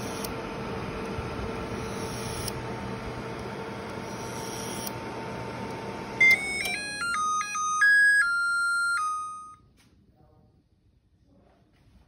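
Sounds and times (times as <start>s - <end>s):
microwave hiss and hum: 0.0s - 10.2s
electronic beeper tune: 6.2s - 9.6s.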